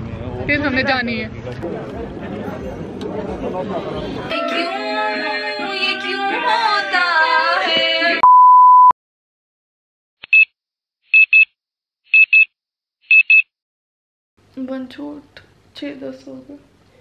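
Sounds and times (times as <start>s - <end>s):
digital alarm beeping in pairs: 8.2s - 8.9s, 11.2s - 11.5s, 12.1s - 12.5s, 13.1s - 13.5s
loud one-pitch beep: 8.2s - 9.0s, 13.1s - 13.5s.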